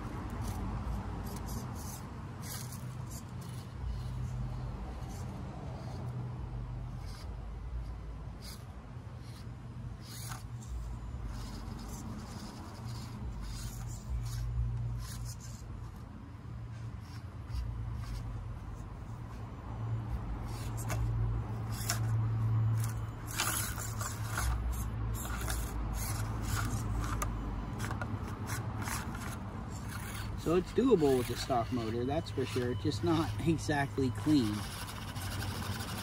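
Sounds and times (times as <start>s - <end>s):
tyres scraping on stone: 20.4s - 36.0s.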